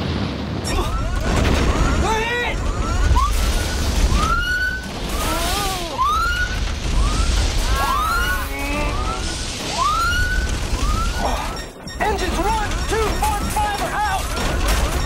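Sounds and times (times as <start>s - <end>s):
film score: 0.0s - 15.0s
whistling glides: 2.6s - 11.7s.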